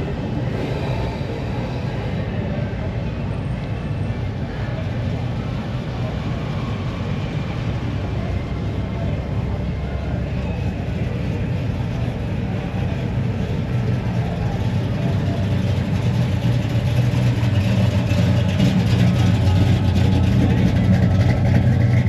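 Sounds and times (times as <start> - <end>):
car engine rumbling: 0.0 - 22.0.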